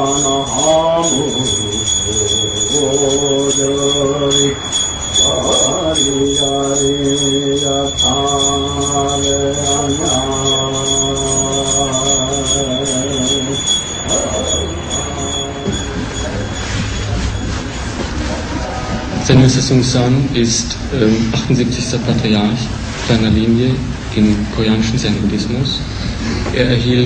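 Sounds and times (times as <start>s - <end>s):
high-pitched jingling beat: 0.0s - 18.6s.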